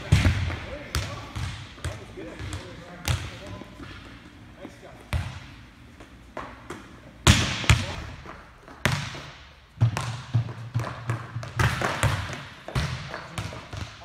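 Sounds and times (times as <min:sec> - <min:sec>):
volleyballs hit and bouncing: 0:00.0 - 0:04.3, 0:05.1 - 0:14.0.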